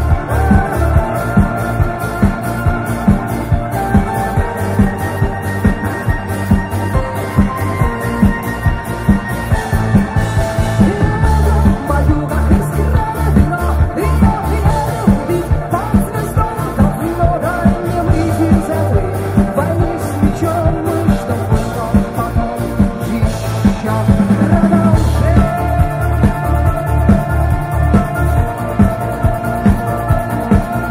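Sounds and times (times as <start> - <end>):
rock band playing: 0.0 - 30.9.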